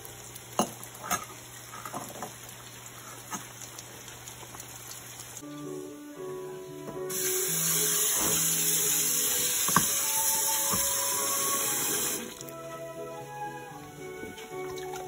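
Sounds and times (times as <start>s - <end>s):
soft background music: 5.4s - 15.0s
tap water running into sink: 7.0s - 12.5s.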